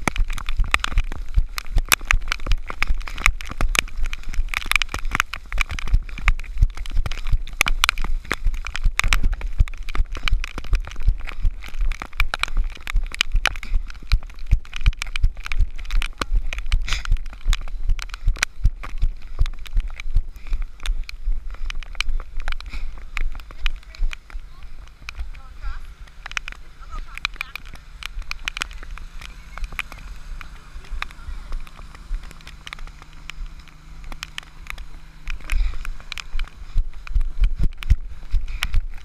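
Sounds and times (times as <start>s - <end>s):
footsteps running on wet mud: 0.0s - 39.0s
rain striking camera housing: 22.0s - 37.1s.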